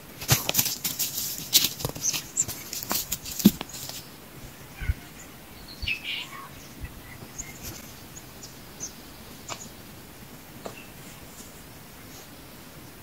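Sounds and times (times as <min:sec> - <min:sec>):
soft crackles: 0:00.1 - 0:04.2
faint bird chirps: 0:04.5 - 0:09.7.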